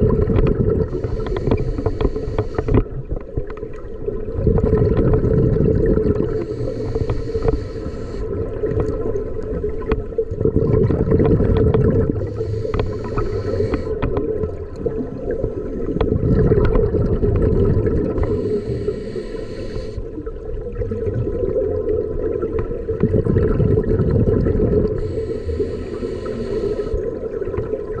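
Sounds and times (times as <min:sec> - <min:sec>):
bubbling exhale: 0:00.0 - 0:02.9, 0:04.4 - 0:09.2, 0:10.3 - 0:14.5, 0:15.7 - 0:20.2, 0:22.9 - 0:27.4
regulator inhale hiss: 0:00.9 - 0:02.8, 0:06.3 - 0:08.5, 0:12.1 - 0:14.1, 0:18.2 - 0:20.1, 0:25.0 - 0:27.0
steady low hum: 0:06.4 - 0:08.4, 0:12.0 - 0:14.0, 0:18.2 - 0:20.1, 0:25.0 - 0:27.0.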